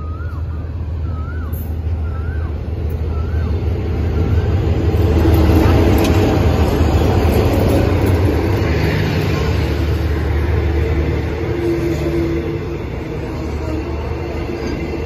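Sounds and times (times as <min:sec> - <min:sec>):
diesel locomotive engine drone: 0:00.0 - 0:15.0
train coaches rolling: 0:00.0 - 0:15.0.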